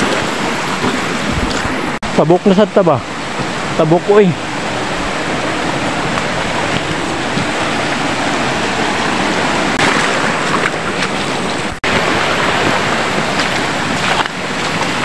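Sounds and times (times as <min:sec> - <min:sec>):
river flowing over rocks: 0:00.0 - 0:15.0.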